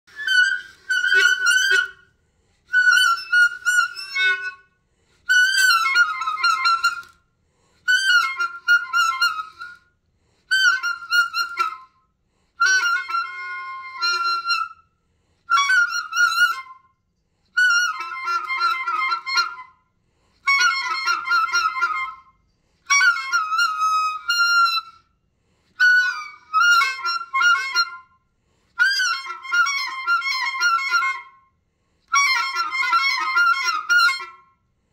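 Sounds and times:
clarinet playing high notes: 0:00.1 - 0:02.0, 0:02.7 - 0:04.6, 0:05.3 - 0:07.2, 0:07.9 - 0:09.8, 0:12.6 - 0:14.8, 0:20.5 - 0:22.3, 0:22.9 - 0:25.0, 0:32.1 - 0:34.4.

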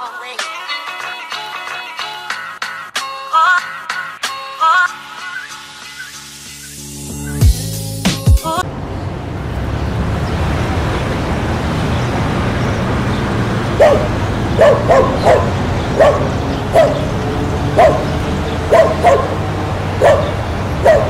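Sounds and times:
dog barking sharply: 0:13.8 - 0:17.1, 0:17.8 - 0:19.4, 0:20.0 - 0:21.0.

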